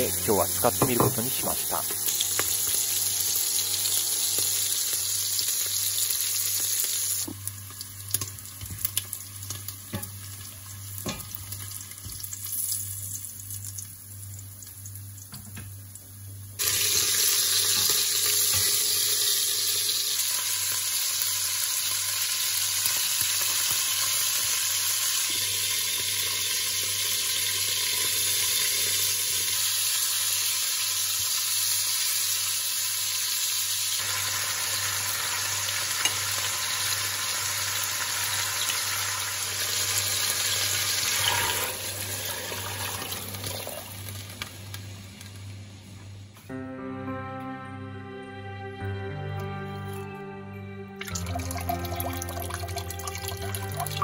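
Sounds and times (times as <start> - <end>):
meat sizzling in oil: 0.0 - 45.6.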